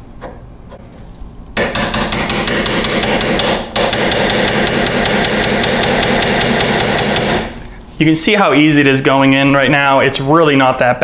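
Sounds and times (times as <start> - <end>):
hammer tapping metal punch: 1.6 - 7.5.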